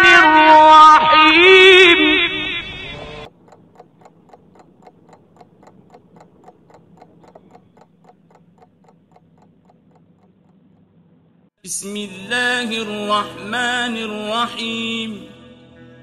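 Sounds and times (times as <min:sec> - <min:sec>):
faint even ticking: 0:03.2 - 0:11.2.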